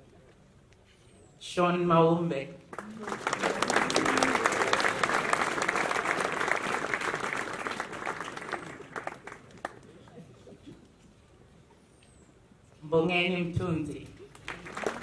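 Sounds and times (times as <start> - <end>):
audience applauding: 2.7 - 10.2, 14.3 - 15.0.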